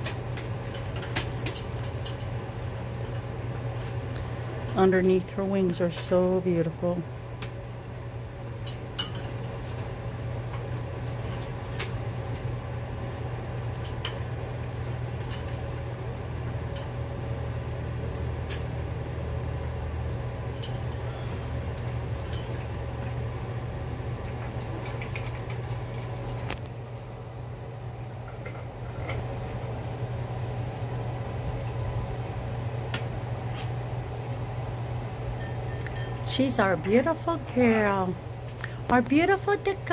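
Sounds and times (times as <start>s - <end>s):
low machine hum: 0.0s - 39.9s
clinks on metal bowls: 35.4s - 36.3s.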